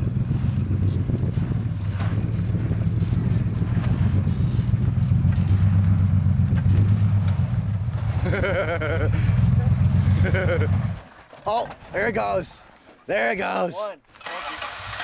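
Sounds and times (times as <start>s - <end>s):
truck engine running at low revs: 0.0s - 11.1s.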